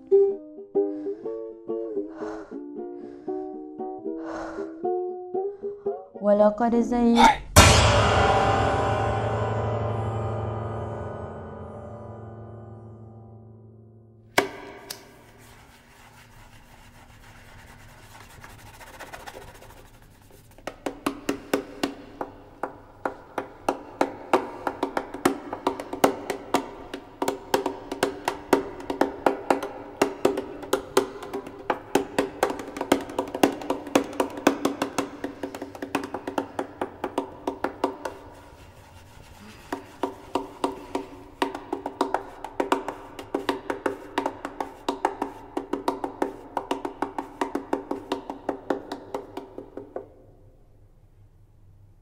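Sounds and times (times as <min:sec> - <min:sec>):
sudden horror hit: 0:07.5 - 0:13.8.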